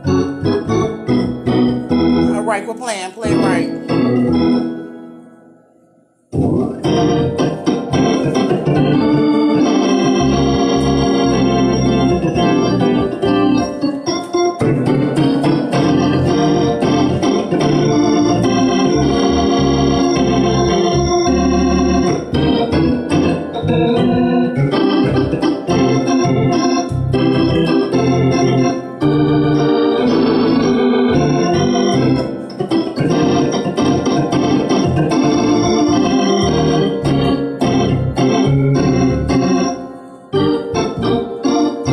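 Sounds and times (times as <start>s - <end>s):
drawbar organ playing chords: 0.0s - 5.3s, 6.3s - 41.9s.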